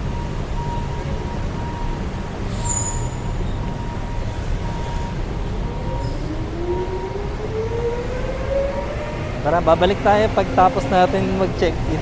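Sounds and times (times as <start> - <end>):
traffic rumble: 0.0 - 12.0
high squeal: 2.5 - 3.7.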